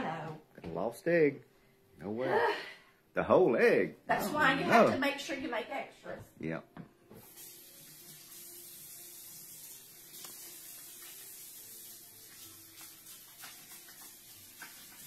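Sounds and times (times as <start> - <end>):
faucet running into sink: 7.2 - 15.0.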